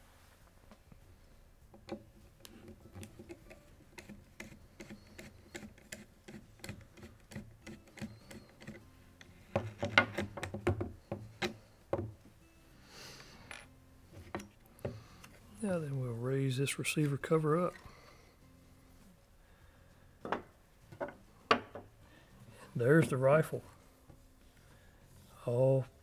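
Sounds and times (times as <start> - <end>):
soft rustle: 0.0 - 1.2.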